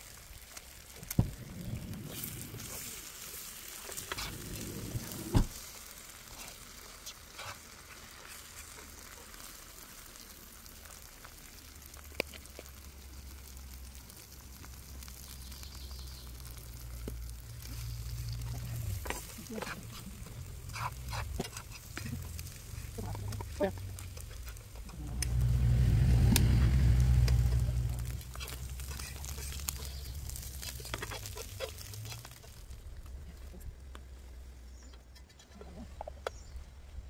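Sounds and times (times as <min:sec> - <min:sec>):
eggs sizzling in frying pan: 0:00.0 - 0:34.0
low rumble: 0:01.1 - 0:03.1, 0:03.9 - 0:05.5, 0:16.5 - 0:30.9.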